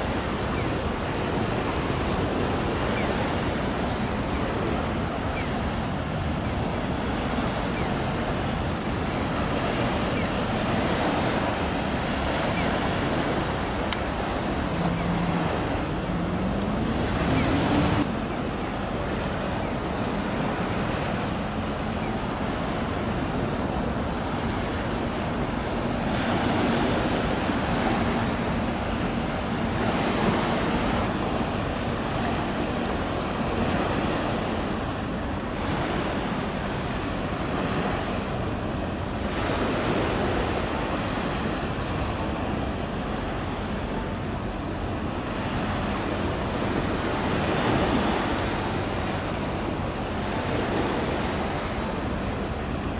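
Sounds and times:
wind buffeting microphone: 0.0 - 21.6
choppy water: 0.0 - 52.9.

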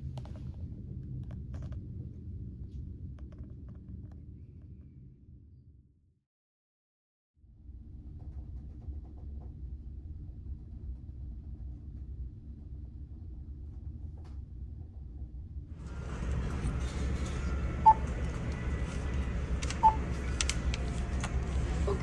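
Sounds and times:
ferry engines humming: 15.8 - 22.0
room noise: 15.8 - 22.0
vending machine electronic beeps: 15.8 - 22.0.

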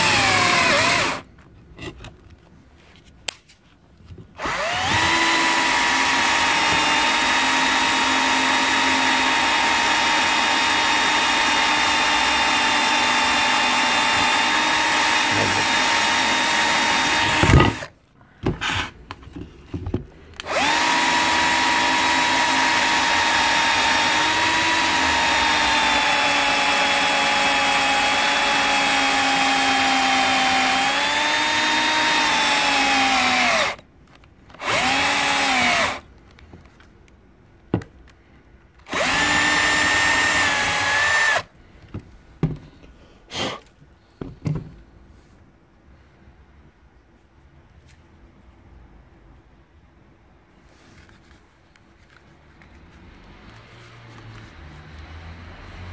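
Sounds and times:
cordless drill drilling into plastic: 0.0 - 1.2, 4.4 - 17.9, 20.4 - 33.8, 34.5 - 36.0, 38.8 - 41.5.

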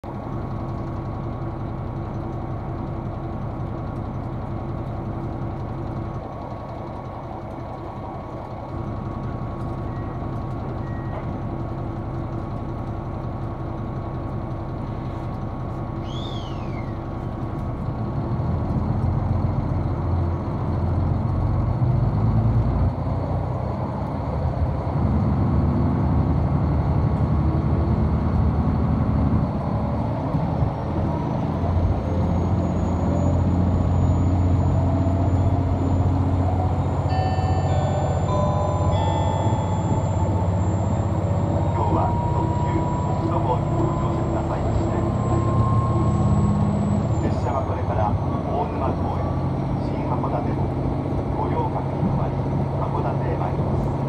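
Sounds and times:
diesel railcar engine droning: 0.0 - 54.0
train running noise: 0.1 - 54.0
falling squeak: 16.0 - 17.0.

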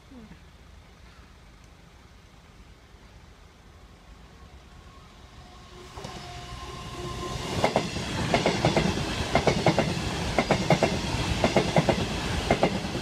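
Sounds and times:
diesel train passing: 3.4 - 13.0.

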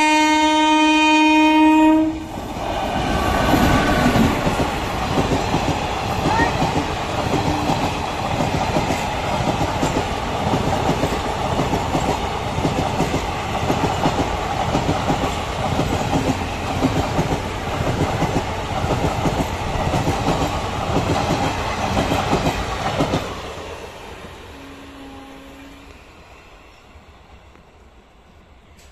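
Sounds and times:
train coaches rattling: 2.2 - 23.8.

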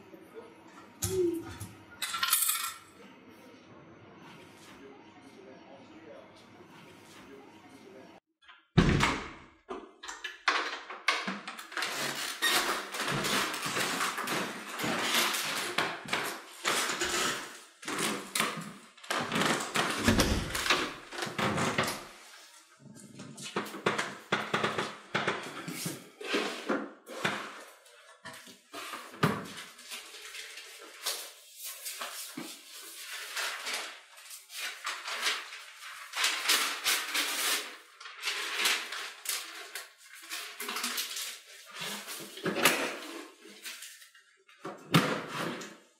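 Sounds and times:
door: 8.8 - 9.4, 19.8 - 22.0.

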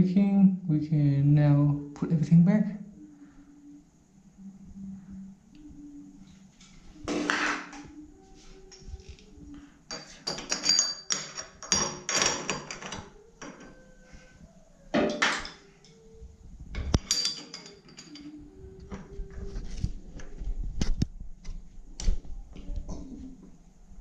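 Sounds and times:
box spanner clinking on metal: 9.9 - 13.0, 17.0 - 18.3.

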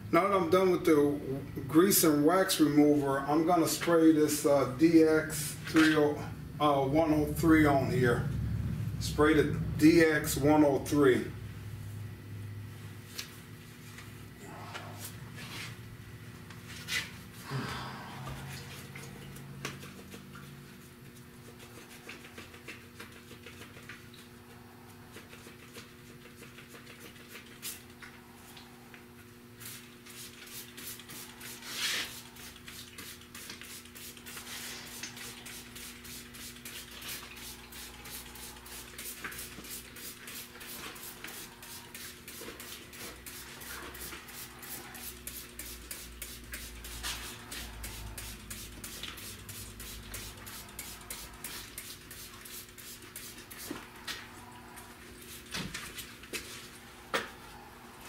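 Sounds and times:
steady low hum: 0.0 - 58.0
spray bottle squirts: 29.6 - 53.9.

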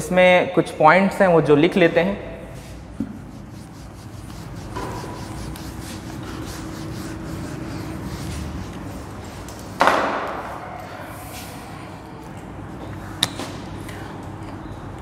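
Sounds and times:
duster rubbing on whiteboard: 2.6 - 9.7.

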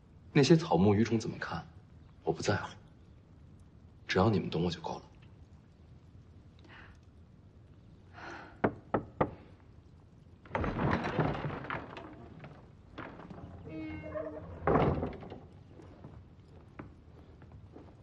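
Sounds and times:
knocks on wooden door: 8.6 - 9.4
wooden doors rattling and scraping: 10.3 - 18.0.

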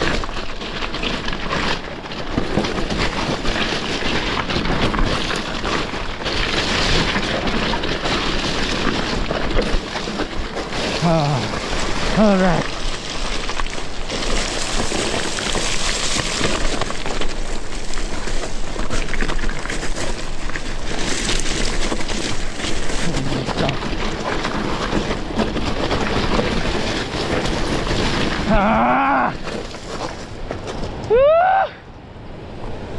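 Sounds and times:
bike rattling: 0.0 - 31.4
bike tyres crunching on gravel: 0.0 - 31.7
person speaking: 10.9 - 12.7, 23.0 - 23.9.

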